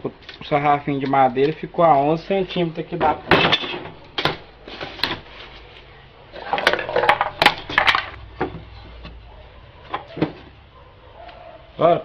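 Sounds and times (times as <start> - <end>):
wooden boards knocking: 6.5 - 8.7.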